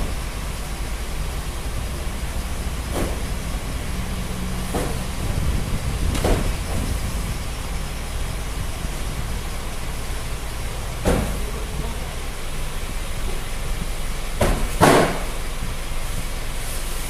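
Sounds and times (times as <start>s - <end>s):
steady low rumble: 0.0s - 17.0s
cartons thudding: 2.7s - 3.5s, 4.2s - 6.9s, 11.0s - 11.6s, 14.4s - 15.4s.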